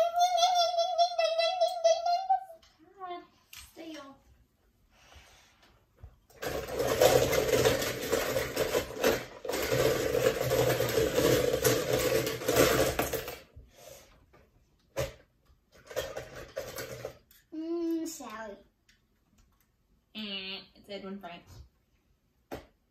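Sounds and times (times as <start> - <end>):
toy cars clattering in bowl: 6.4 - 13.5, 15.8 - 17.4.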